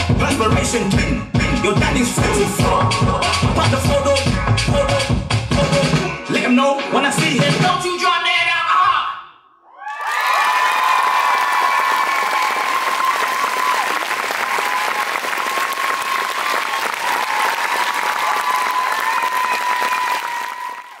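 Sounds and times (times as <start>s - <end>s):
long high cheer: 9.7s - 21.0s
audience applauding: 9.9s - 21.0s.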